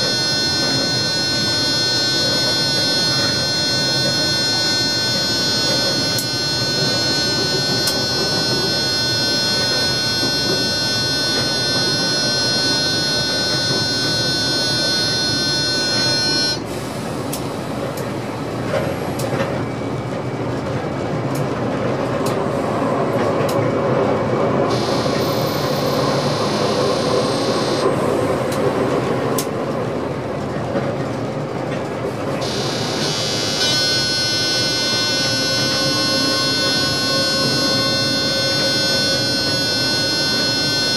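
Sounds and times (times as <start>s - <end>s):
electric traction whine: 0.0s - 17.7s, 24.7s - 29.5s, 32.4s - 40.9s
rail joint clicks: 5.6s - 19.7s, 25.1s - 40.9s
wheels rumbling on rails: 17.1s - 33.1s.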